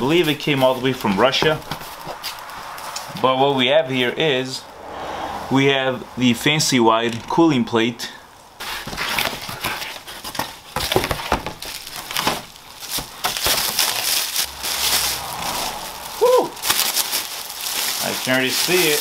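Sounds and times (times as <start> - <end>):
cardboard rustling and scraping: 0.0 - 3.1, 8.6 - 19.0
plastic wrapping crinkling: 0.0 - 3.1, 8.6 - 19.0.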